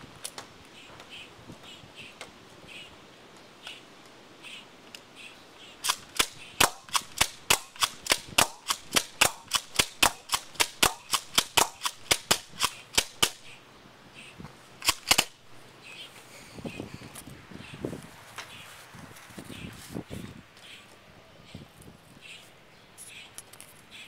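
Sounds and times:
airsoft gun shots: 5.8 - 13.5, 14.8 - 15.4.

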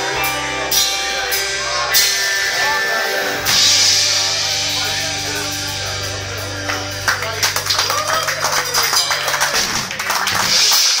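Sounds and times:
rock band chord ringing out: 0.0 - 10.9
audience applause: 6.6 - 11.0
audience cheering: 6.7 - 11.0.

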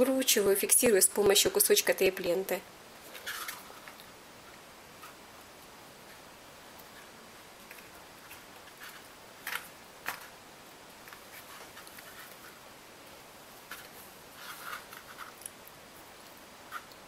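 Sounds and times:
small crinkles: 3.0 - 10.4, 11.0 - 17.0
faint rustling: 3.0 - 17.0.

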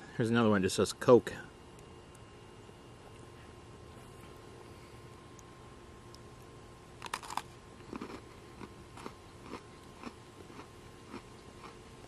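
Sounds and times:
cookie crunching bite: 7.0 - 11.8
chewing crunches: 7.0 - 12.0.

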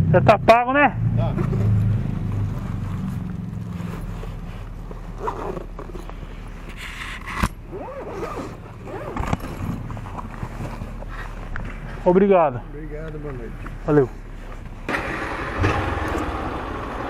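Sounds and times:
bag rustling: 2.4 - 12.0
zipper: 2.5 - 11.4.

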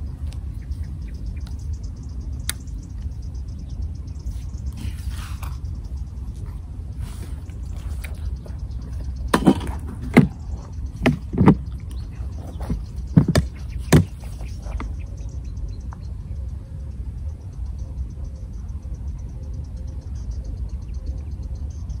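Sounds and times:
knocks on plastic seat box: 11.0 - 11.6.

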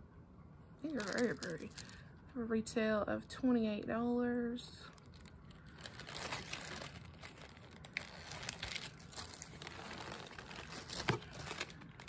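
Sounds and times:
plastic bags crinkling: 0.8 - 2.0, 4.8 - 12.0
small clicks and crackles: 0.9 - 2.0, 4.8 - 12.0.

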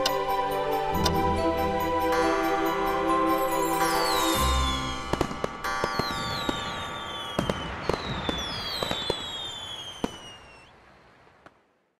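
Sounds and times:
fireworks whistling: 3.9 - 10.8
fireworks cracking and banging: 4.4 - 11.8.

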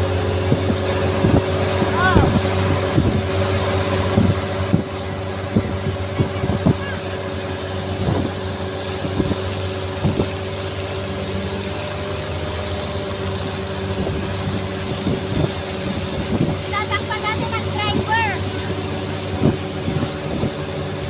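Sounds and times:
boat engine running: 0.0 - 21.0.

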